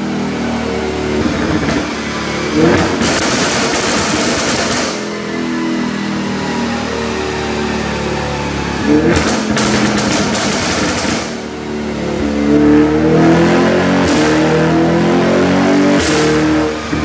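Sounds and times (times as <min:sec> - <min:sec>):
car engine revving: 0:00.0 - 0:17.0
exhaust crackling pops and bangs: 0:01.2 - 0:02.0, 0:02.7 - 0:05.2, 0:09.1 - 0:11.4.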